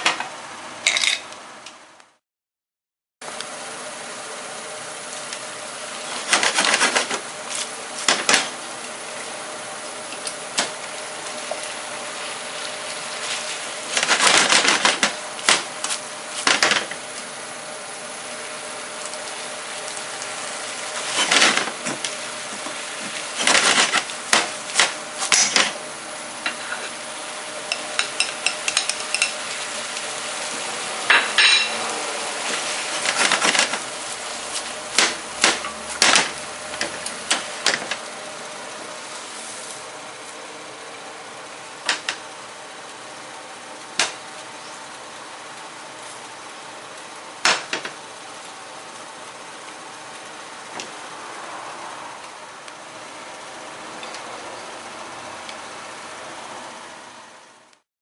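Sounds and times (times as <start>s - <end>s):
sauce sizzling in a frying pan: 3.5s - 14.5s, 15.1s - 47.4s
tongs scraping and clattering on pan: 26.4s - 27.0s, 27.6s - 29.6s, 31.1s - 31.9s.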